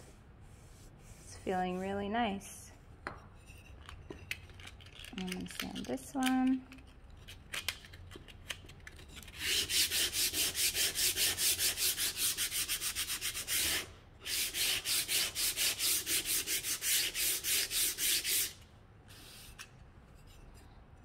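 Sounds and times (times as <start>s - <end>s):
sandpaper rubbing on wood: 9.4s - 18.6s.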